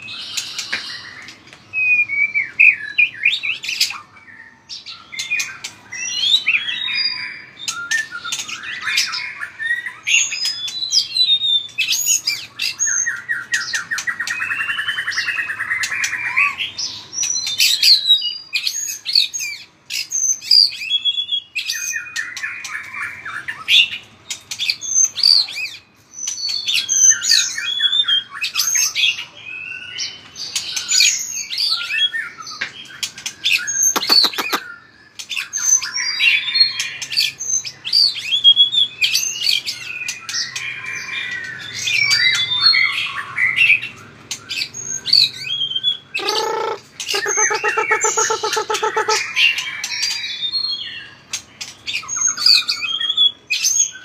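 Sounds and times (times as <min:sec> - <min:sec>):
bird singing whistled song: 0:00.0 - 0:54.0
bird rattling trills: 0:33.8 - 0:34.6.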